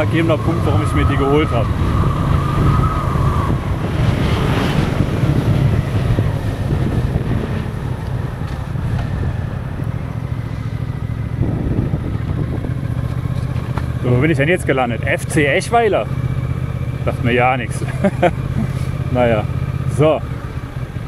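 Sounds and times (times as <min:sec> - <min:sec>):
wind on microphone: 0:00.0 - 0:13.8
motorcycle engine running: 0:00.0 - 0:21.0.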